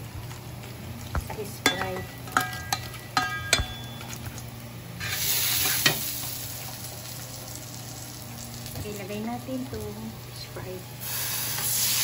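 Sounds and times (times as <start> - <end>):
ringing clinks on bowl: 1.7 - 4.2.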